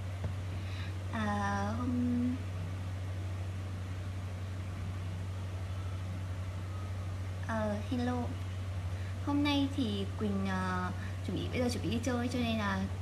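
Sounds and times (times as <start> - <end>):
steady low hum: 0.0 - 13.0
woman humming: 1.2 - 2.5.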